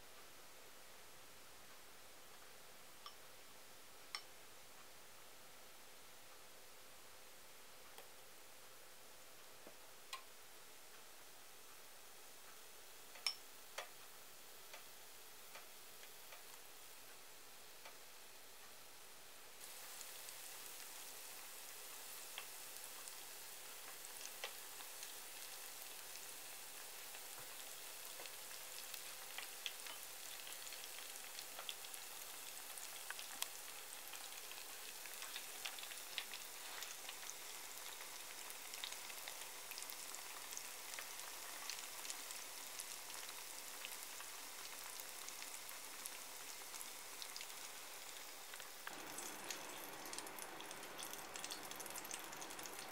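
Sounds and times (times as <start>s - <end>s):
food deep-frying in oil: 19.6s - 52.9s.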